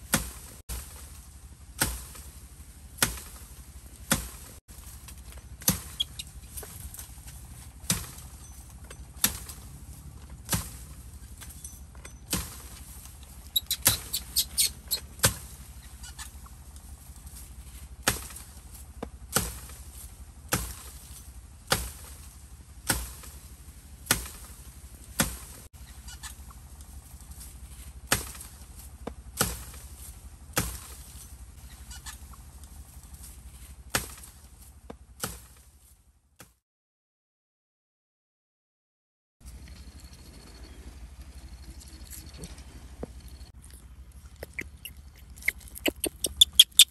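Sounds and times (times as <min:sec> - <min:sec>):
blade chopping bamboo: 0:00.0 - 0:11.5, 0:12.2 - 0:13.0, 0:13.7 - 0:14.5, 0:15.2 - 0:15.6, 0:18.0 - 0:25.7, 0:28.0 - 0:31.5, 0:33.2 - 0:35.8, 0:36.4 - 0:36.6.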